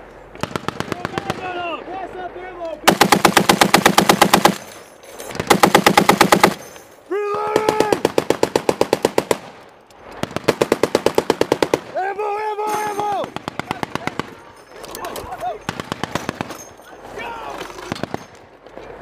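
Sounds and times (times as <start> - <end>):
heavy machine gun firing bursts: 0.4 - 1.6, 2.9 - 4.7, 5.4 - 6.6, 7.6 - 9.5, 10.2 - 12.0, 13.3 - 14.4, 15.7 - 16.5.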